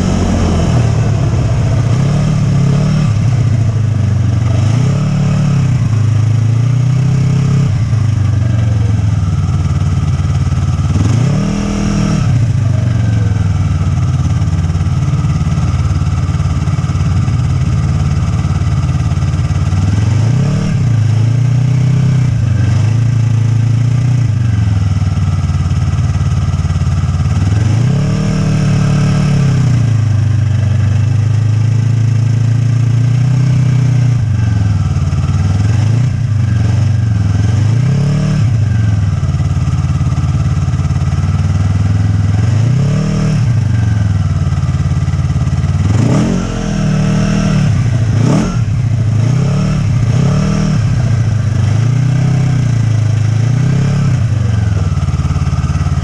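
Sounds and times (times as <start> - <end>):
snowmobile engine revving: 0.0 - 6.0, 10.9 - 13.6, 45.8 - 54.8.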